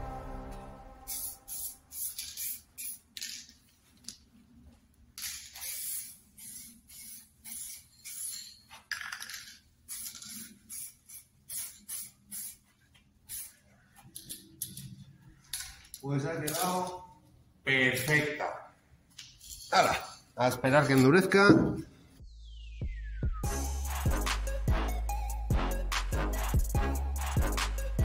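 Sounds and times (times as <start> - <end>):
aerosol spray can hissing: 1.1 - 3.1, 5.5 - 8.4, 9.9 - 12.7, 13.3 - 13.6.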